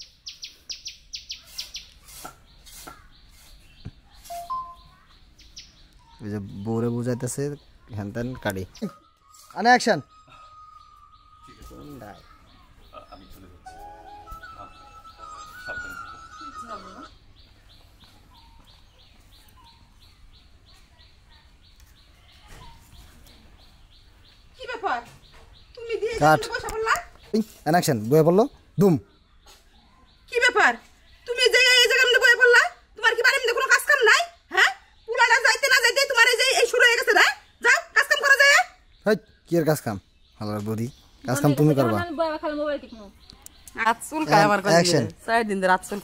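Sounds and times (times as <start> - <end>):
bird chirping high and falling: 0.0 - 6.2, 8.2 - 20.1
small bird chirping: 0.0 - 46.0.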